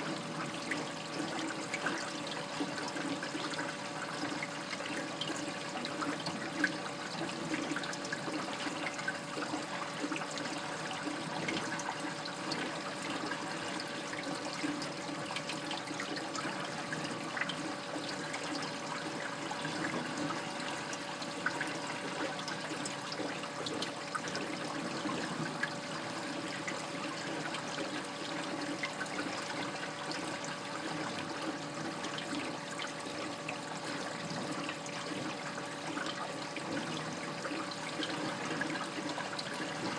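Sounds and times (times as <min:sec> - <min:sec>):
water running and trickling: 0:00.0 - 0:39.9.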